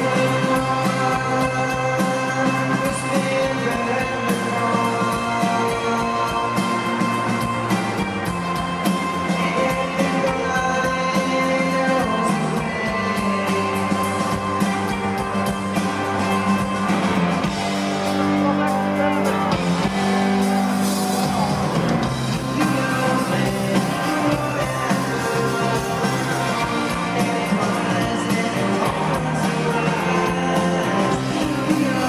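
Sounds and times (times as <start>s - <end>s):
live rock band playing: 0.0s - 32.0s.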